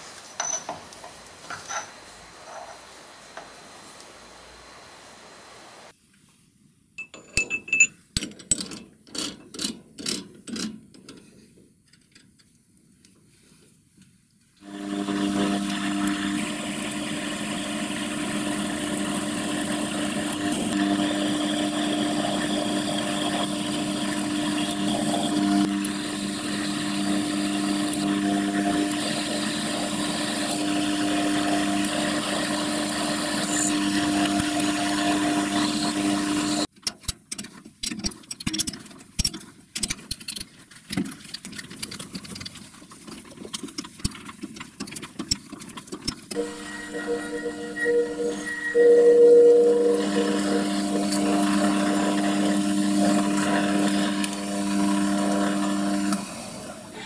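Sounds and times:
metal clicks and knocks: 0:07.0 - 0:12.6, 0:36.7 - 0:42.6
metal lathe running: 0:14.7 - 0:36.7, 0:46.4 - 0:56.9.

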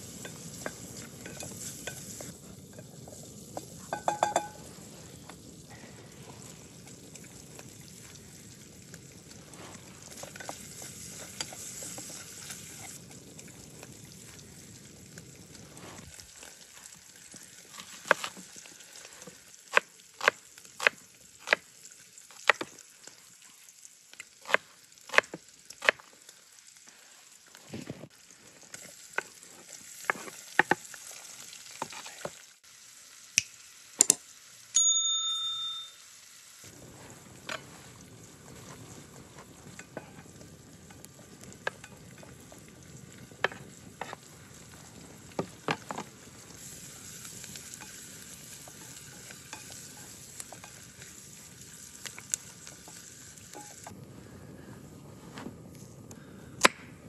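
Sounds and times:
fire crackling: 0:00.0 - 0:32.7, 0:36.5 - 0:57.0
food sizzling in a pot: 0:00.0 - 0:57.0
metallic clink: 0:34.8 - 0:36.0.

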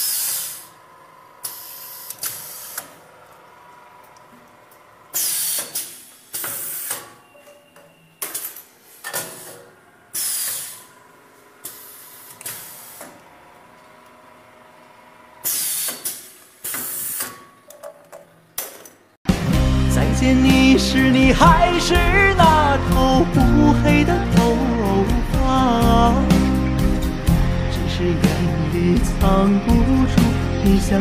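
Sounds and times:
pneumatic cylinder clacks: 0:00.0 - 0:00.8, 0:01.4 - 0:03.1, 0:04.1 - 0:11.0, 0:11.6 - 0:13.2, 0:15.4 - 0:19.1
short air hiss: 0:00.0 - 0:00.8, 0:05.2 - 0:07.0, 0:10.2 - 0:10.9, 0:15.4 - 0:17.3
faint machine hum: 0:00.0 - 0:06.3.

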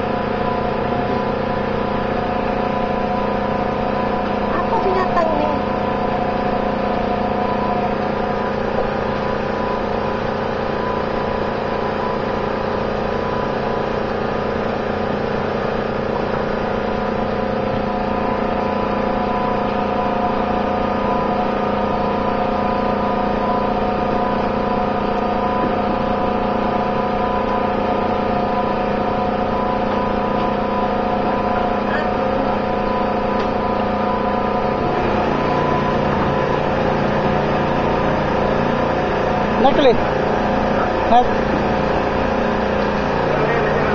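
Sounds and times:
engine droning steadily: 0:00.0 - 0:43.9.

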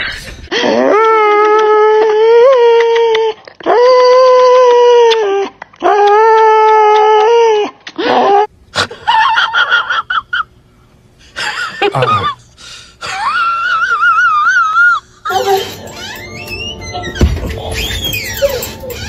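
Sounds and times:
dog howling and yowling: 0:13.4 - 0:19.0.

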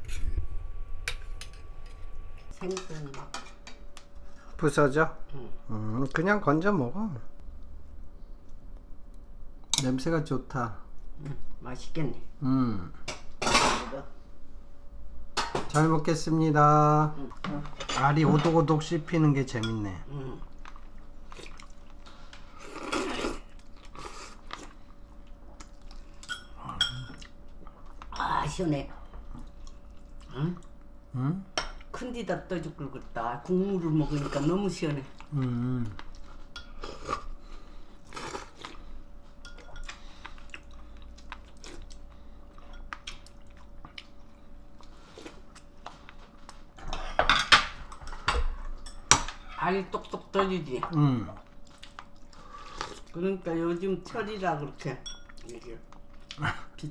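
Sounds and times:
person chewing: 0:20.4 - 0:28.0, 0:38.0 - 0:38.9, 0:39.5 - 0:46.7, 0:51.4 - 0:53.2
person chewing crunchy food: 0:35.2 - 0:46.7, 0:51.4 - 0:53.2.

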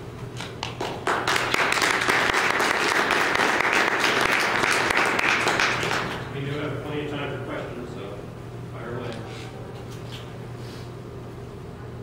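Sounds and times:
audience applauding: 0:00.6 - 0:06.2.

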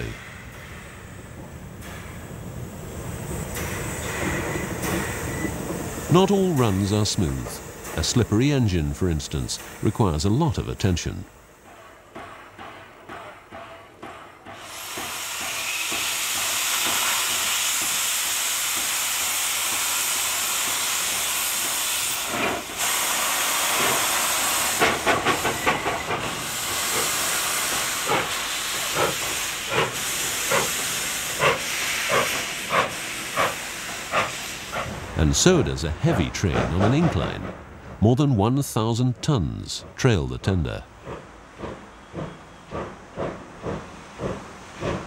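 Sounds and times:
steam hissing: 0:00.0 - 0:36.6, 0:39.8 - 0:45.0
locomotive exhaust chuffs: 0:40.9 - 0:45.0.

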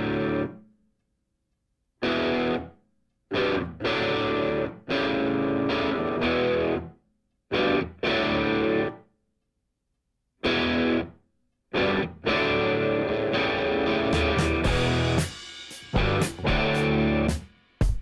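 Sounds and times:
distorted electric guitar chords: 0:00.0 - 0:00.6, 0:02.0 - 0:06.9, 0:07.5 - 0:09.0, 0:10.4 - 0:17.4.

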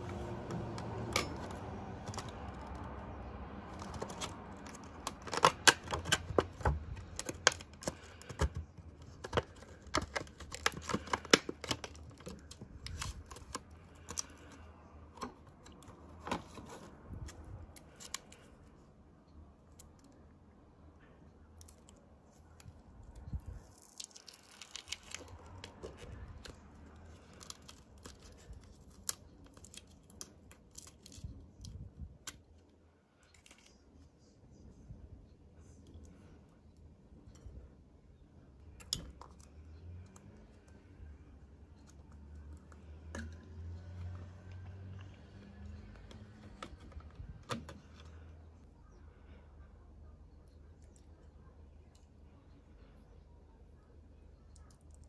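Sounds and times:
plastic packaging crinkling: 0:03.6 - 0:14.6, 0:21.6 - 0:31.8.

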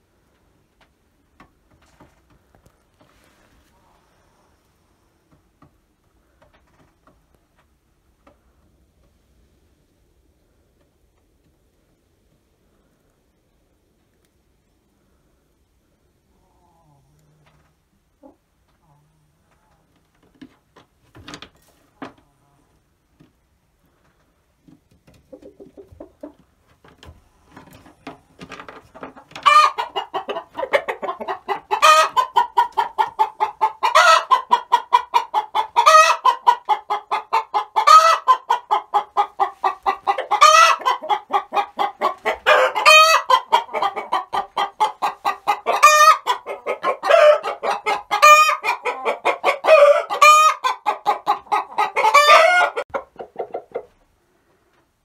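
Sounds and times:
hen clucking: 0:24.8 - 0:54.0.

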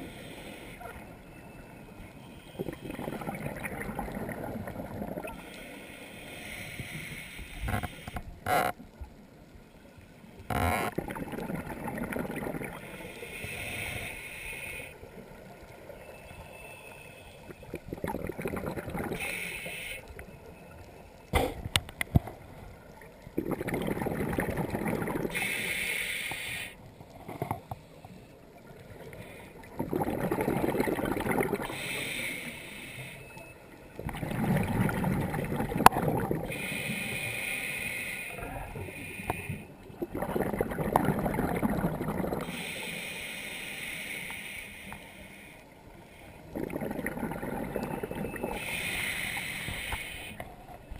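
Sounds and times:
hissing inhale through regulator: 0:00.0 - 0:01.5, 0:04.2 - 0:08.7, 0:12.6 - 0:15.2, 0:18.6 - 0:20.3, 0:24.6 - 0:30.1, 0:31.4 - 0:33.6, 0:34.6 - 0:40.7, 0:41.9 - 0:50.6
bubbling exhale underwater: 0:02.6 - 0:05.4, 0:10.8 - 0:12.8, 0:17.6 - 0:19.3, 0:23.3 - 0:25.5, 0:29.6 - 0:32.0, 0:34.0 - 0:36.8, 0:39.9 - 0:42.6, 0:46.5 - 0:49.6.

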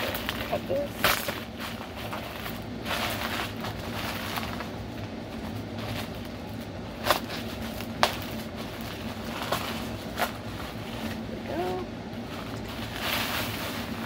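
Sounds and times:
bubble wrap crinkling: 0:00.0 - 0:14.0
steady low hum: 0:00.0 - 0:14.0.

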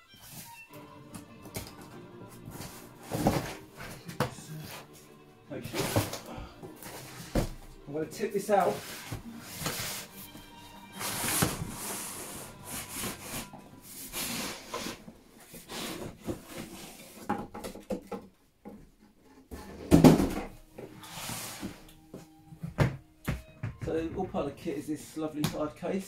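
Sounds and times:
cardboard scraping and rustling: 0:02.5 - 0:04.9, 0:05.7 - 0:07.6, 0:08.4 - 0:17.3.

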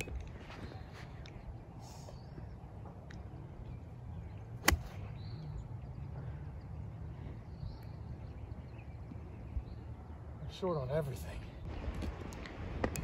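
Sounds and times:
golf club striking ball: 0:04.6 - 0:05.0.

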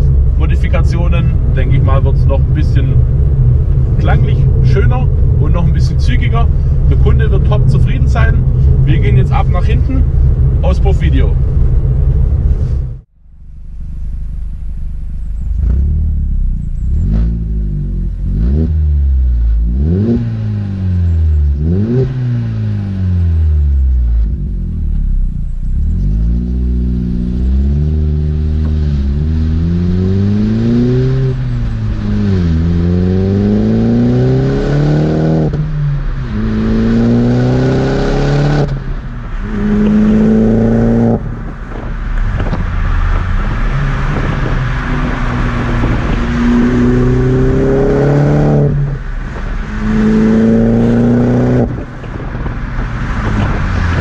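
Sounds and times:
wind and road noise: 0:00.0 - 0:54.0
car engine accelerating hard: 0:15.3 - 0:54.0.

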